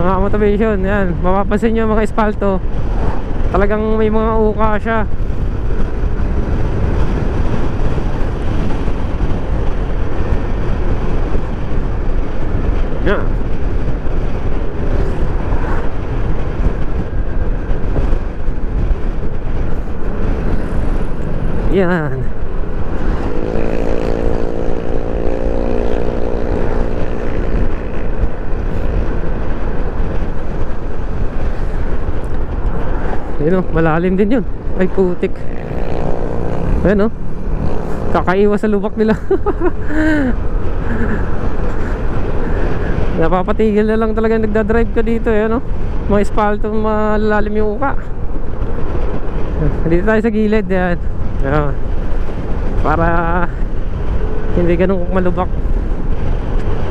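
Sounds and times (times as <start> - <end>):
scooter road noise: 0.0 - 56.9
wind rushing on microphone: 0.0 - 56.9
scooter engine droning: 22.3 - 29.6, 34.8 - 43.0.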